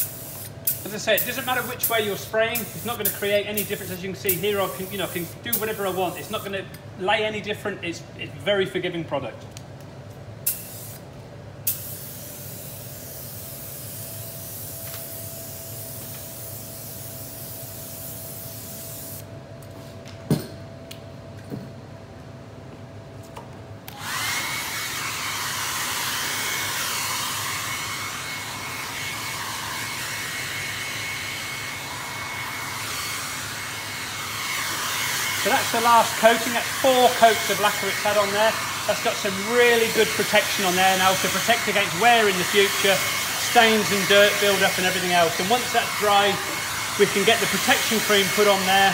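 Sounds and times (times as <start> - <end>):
spray gun hissing: 0.0 - 6.4, 10.5 - 11.0, 11.7 - 19.3, 24.6 - 48.9
hot-air dryer blowing with whine: 23.9 - 48.9.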